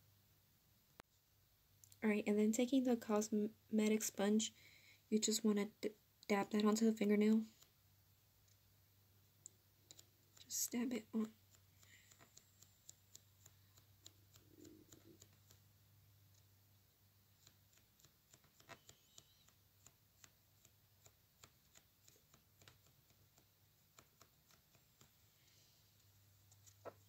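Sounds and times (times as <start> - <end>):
faint low hum: 0.0 - 27.0
sponge dabbing soft ticks: 6.2 - 8.7, 9.4 - 27.0.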